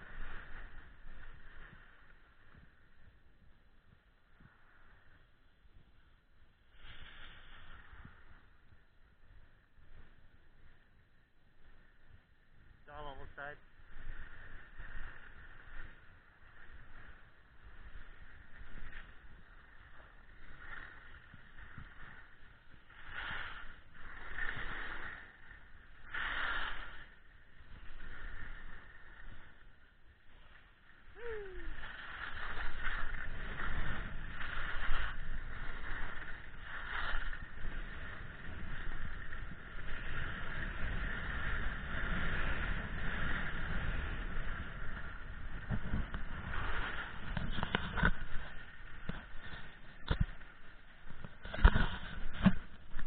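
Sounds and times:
skis scraping over snow: 0.0s - 53.0s.

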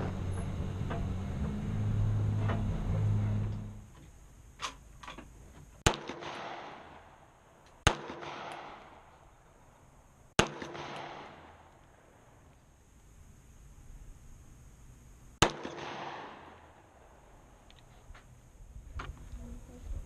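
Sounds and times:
vehicle engine: 0.0s - 4.0s
handgun shots with echo: 5.8s - 7.2s, 7.8s - 9.0s, 10.4s - 11.6s, 15.4s - 16.8s.

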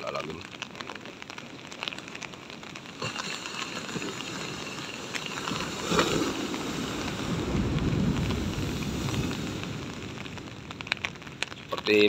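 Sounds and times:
surf crashing on breakwater: 1.7s - 12.0s.

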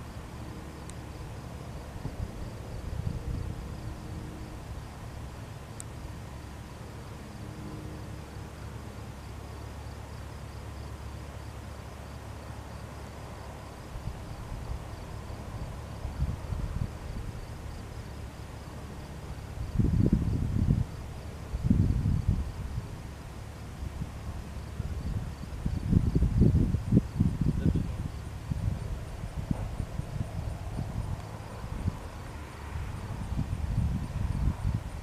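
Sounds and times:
distant plane engine drone: 0.0s - 35.0s
insects chirping: 0.0s - 35.0s
wind buffeting microphone: 1.7s - 4.3s, 14.0s - 17.9s, 19.4s - 35.0s.

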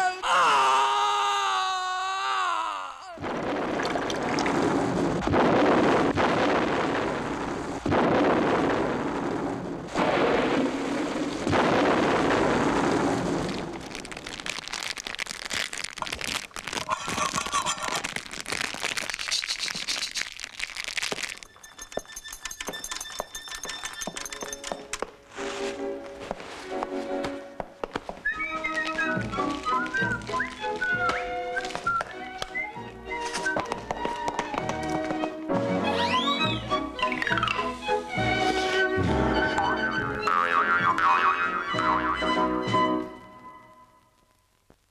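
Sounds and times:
loud crackling noise: 3.2s - 39.1s.

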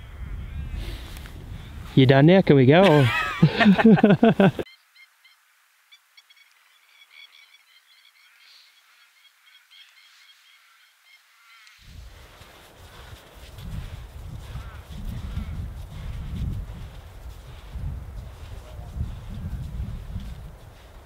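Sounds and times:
man speaking loudly: 2.0s - 3.1s
small birds chirping: 4.6s - 11.8s.

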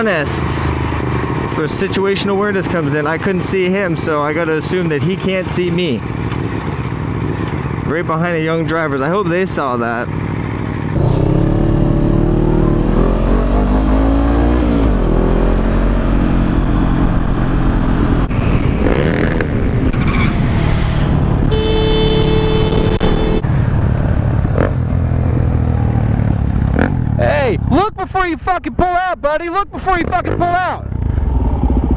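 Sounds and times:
motorcycle engine accelerating: 10.1s - 27.8s, 30.1s - 31.9s
wind rush: 14.8s - 21.7s.

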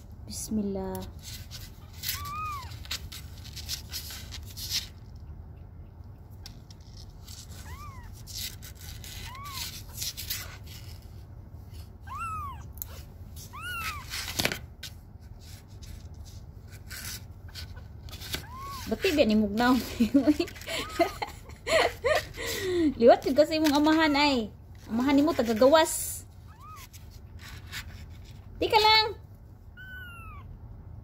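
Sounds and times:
clicks and rustles: 1.0s - 5.3s, 6.3s - 11.2s, 12.8s - 22.4s
kitten mewing: 2.0s - 3.1s, 7.4s - 10.5s, 12.0s - 14.4s, 17.7s - 19.0s, 26.5s - 27.0s, 29.7s - 30.6s.

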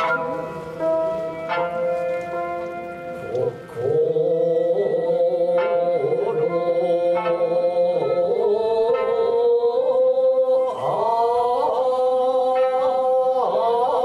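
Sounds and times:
plucked lute accompaniment: 0.0s - 3.8s
person singing long notes: 0.0s - 14.0s.

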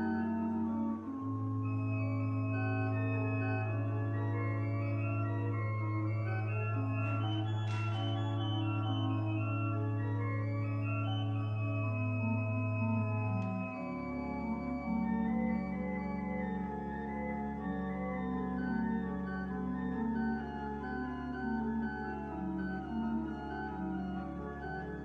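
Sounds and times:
organ music: 0.0s - 25.0s.

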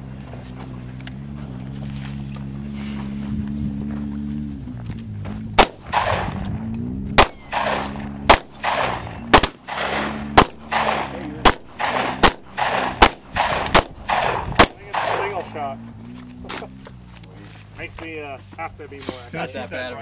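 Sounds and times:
shotgun shots with echo: 5.6s - 6.4s, 7.1s - 15.5s.

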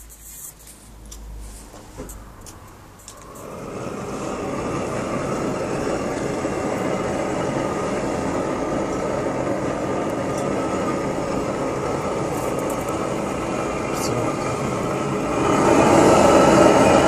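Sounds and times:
blowtorch hissing: 1.4s - 17.0s.

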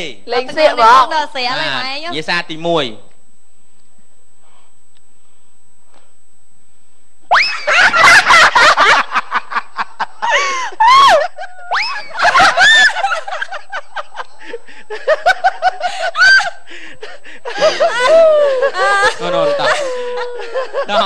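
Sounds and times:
woman laughing: 7.6s - 21.0s.

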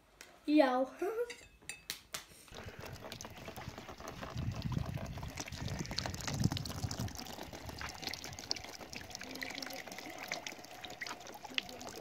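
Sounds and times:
juice trickling into basin: 2.5s - 12.0s
small splashes: 2.5s - 12.0s.

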